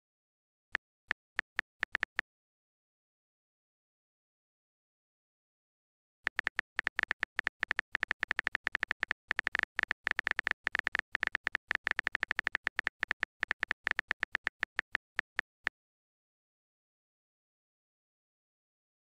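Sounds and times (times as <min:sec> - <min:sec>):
rapid typing clicks: 0:06.3 - 0:15.5.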